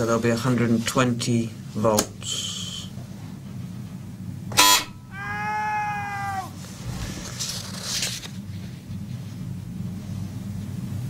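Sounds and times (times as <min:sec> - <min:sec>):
low hum: 0:04.9 - 0:08.8
man crying out in pain: 0:05.0 - 0:06.6.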